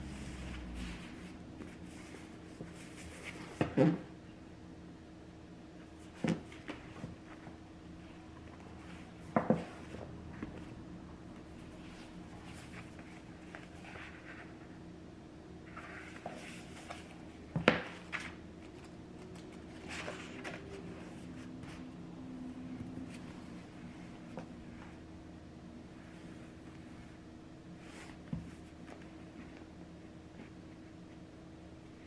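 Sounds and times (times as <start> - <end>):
low steady hum: 0.0 - 32.0
book pages rustling: 15.7 - 21.8.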